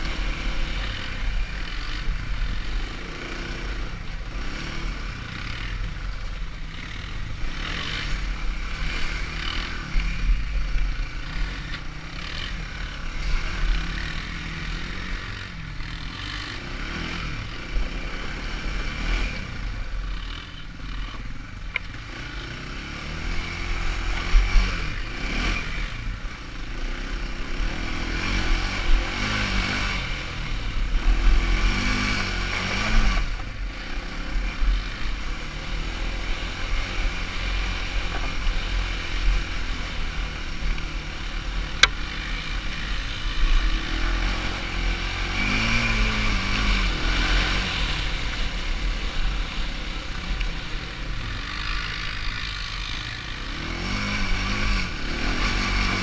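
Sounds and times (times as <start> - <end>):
quad bike engine revving: 0.0 - 56.0.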